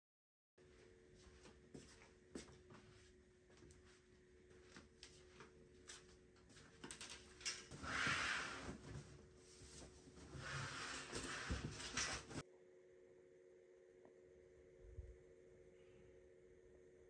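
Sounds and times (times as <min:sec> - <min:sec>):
faint steady hum: 0:00.6 - 0:17.0
scraping rustle: 0:07.5 - 0:12.4.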